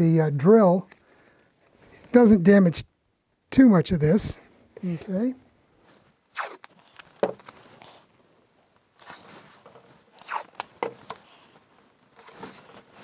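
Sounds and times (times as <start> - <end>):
tape ripping: 6.3 - 7.8, 10.1 - 11.0.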